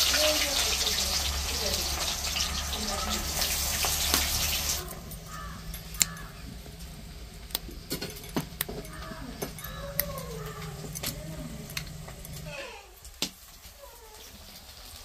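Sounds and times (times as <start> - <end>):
onions sizzling in hot oil: 0.0 - 5.5, 11.8 - 15.0
birds calling: 0.0 - 13.0
spices clicking on a steel bowl: 5.0 - 6.4, 7.4 - 12.5.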